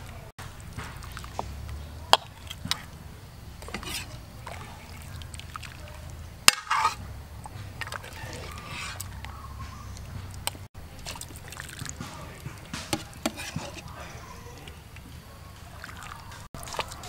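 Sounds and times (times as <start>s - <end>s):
broth sloshing and dripping: 0.0s - 17.0s.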